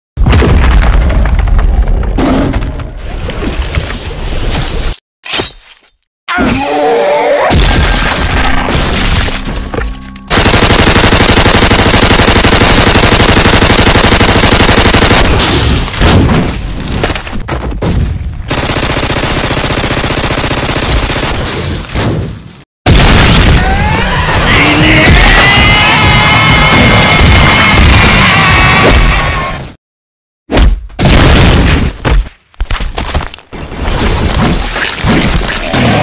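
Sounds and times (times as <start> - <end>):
cartoon machine-gun fire: 10.3 - 15.4, 18.5 - 21.4.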